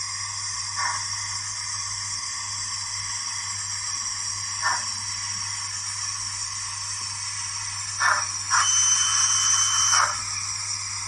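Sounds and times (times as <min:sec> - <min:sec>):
model steam locomotive hissing: 0:00.0 - 0:11.0
faint whistle-like tone: 0:08.6 - 0:10.1.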